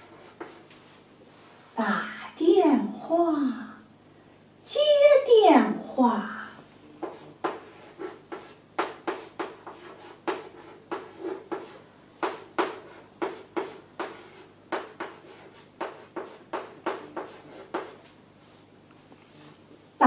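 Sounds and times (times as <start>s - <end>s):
chalk tapping and scraping on board: 0.0s - 1.0s, 7.0s - 18.6s.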